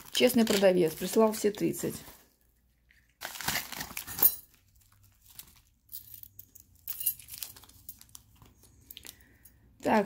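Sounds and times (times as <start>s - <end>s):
plastic bag crinkling: 0.0s - 2.2s, 3.0s - 10.0s
metal pendants clinking: 5.9s - 8.2s.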